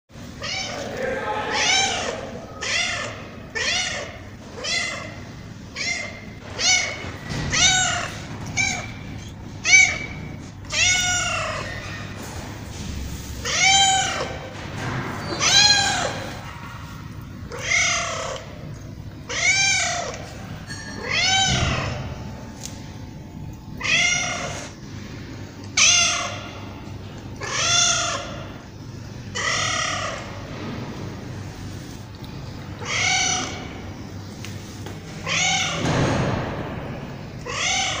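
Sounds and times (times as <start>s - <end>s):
cat meowing: 1.5s - 5.2s, 5.8s - 11.8s, 32.8s - 33.8s.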